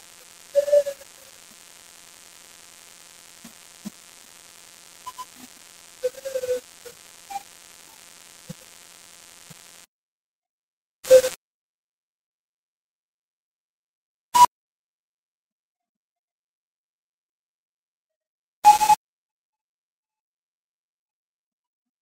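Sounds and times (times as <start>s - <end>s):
background hum and hiss: 0.0s - 9.8s
short blips: 0.0s - 9.9s.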